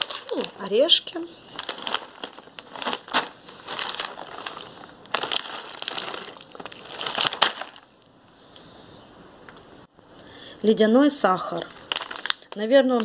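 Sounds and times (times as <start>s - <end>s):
plastic packets crinkling: 0.0s - 8.0s, 11.5s - 13.0s.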